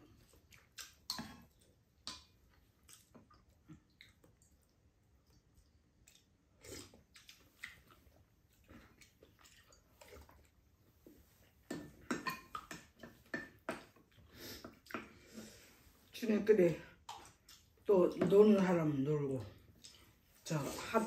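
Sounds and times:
people chewing: 0.0 - 16.0, 19.8 - 20.2.

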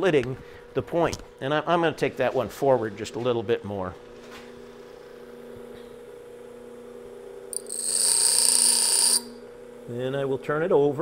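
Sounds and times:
bench grinder humming: 4.9 - 10.7
drill bit grinding on wheel: 7.5 - 9.4.

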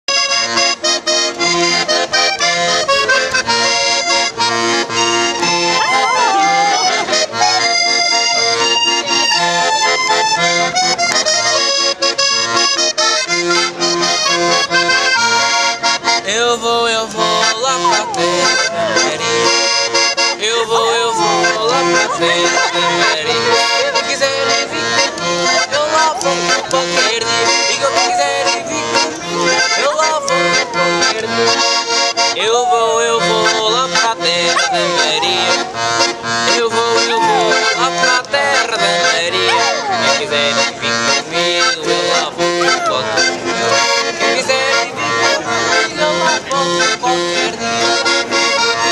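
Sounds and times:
piano accordion playing a tune: 0.1 - 48.9
dog howling: 5.7 - 7.0, 17.8 - 19.1, 27.6 - 29.1, 30.0 - 31.1, 32.4 - 33.2, 34.4 - 35.8.

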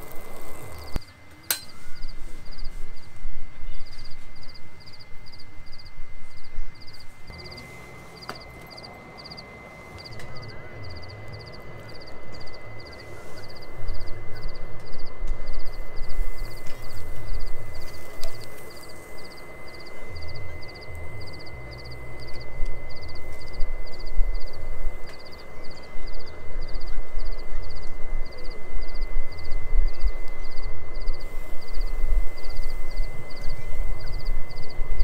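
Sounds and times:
crickets chirping: 0.0 - 35.0
thin steady high tone: 0.0 - 35.0.

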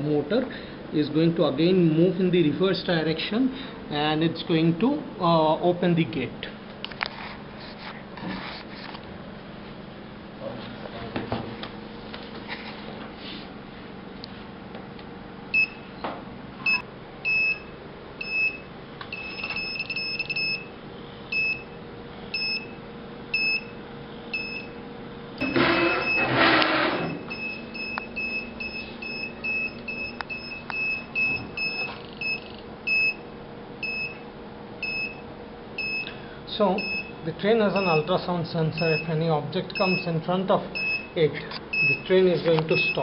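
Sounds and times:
faint steady hum: 0.0 - 43.0
buzzer high-pitched beeps: 16.7 - 20.7, 21.3 - 24.8, 25.4 - 33.2, 33.8 - 34.2, 34.8 - 35.2, 35.8 - 36.1, 36.8 - 38.2, 38.8 - 39.1, 39.8 - 40.1, 40.8 - 42.1, 42.7 - 43.0.

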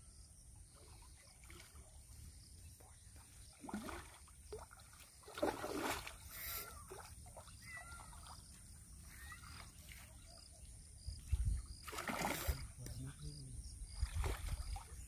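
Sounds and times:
fish splashing in water: 3.6 - 8.4, 11.8 - 12.8.

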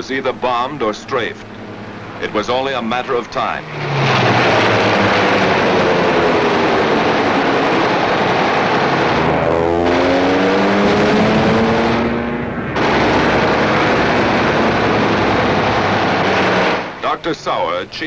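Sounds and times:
aircraft engine running loud: 0.0 - 18.0
rapid machine-gun fire: 12.8 - 16.9.

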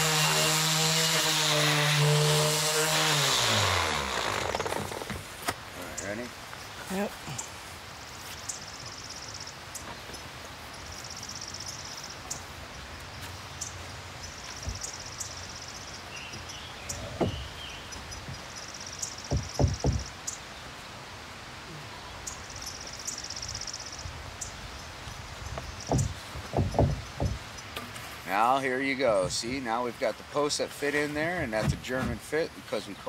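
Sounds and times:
lumber knocking on wood: 14.6 - 14.8, 17.0 - 17.5, 19.3 - 20.1, 25.6 - 27.9, 31.5 - 32.2.

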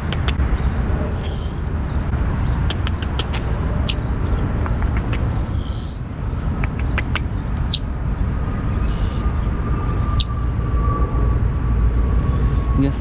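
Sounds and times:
steady low rumble: 0.0 - 13.0
bird calling sharp notes: 1.1 - 1.8, 4.7 - 7.9.

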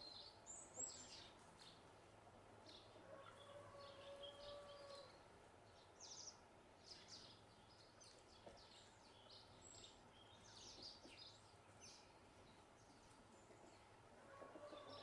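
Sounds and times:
sparrows chirping: 0.0 - 1.8, 5.7 - 13.9.

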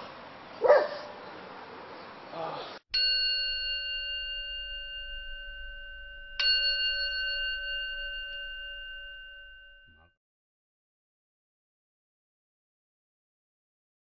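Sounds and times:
bell ringing: 3.0 - 10.1.

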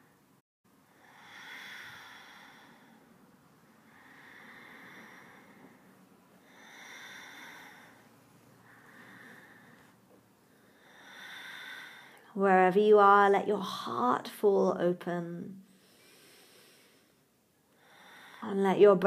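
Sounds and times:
woman breathing slowly: 0.1 - 12.3, 15.6 - 18.5.

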